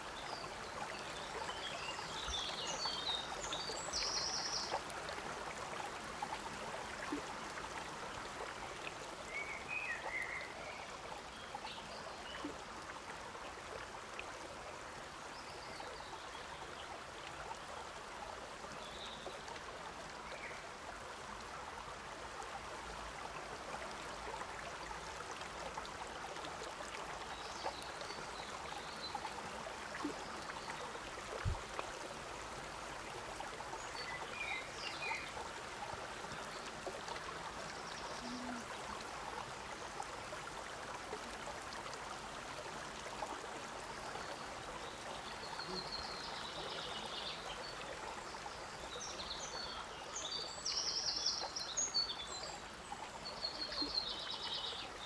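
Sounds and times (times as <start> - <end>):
stream trickling over rocks: 0.0 - 55.0.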